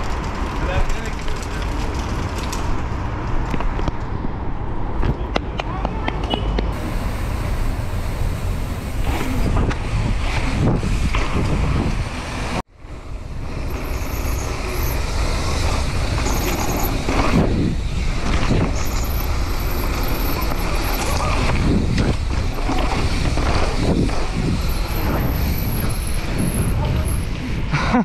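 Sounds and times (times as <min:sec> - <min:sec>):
bike tyres rolling: 0:00.0 - 0:04.2, 0:06.7 - 0:27.7
road traffic: 0:00.0 - 0:28.0
wind rushing over microphone: 0:06.6 - 0:28.0.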